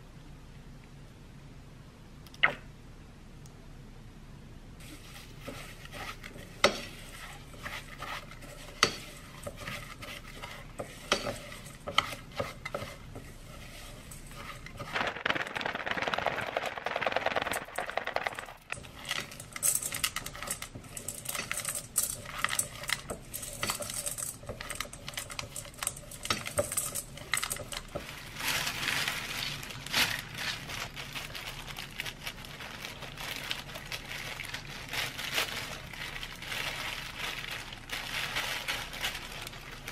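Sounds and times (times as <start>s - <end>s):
spatula scraping mixing bowl: 4.8s - 28.3s.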